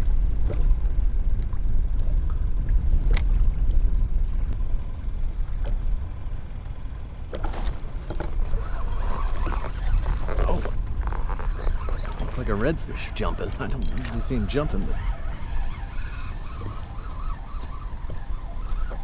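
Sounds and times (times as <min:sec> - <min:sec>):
waves lapping against hull: 0:00.0 - 0:19.0
wind buffeting microphone: 0:00.0 - 0:19.0
gear clicking and knocking: 0:11.1 - 0:19.0.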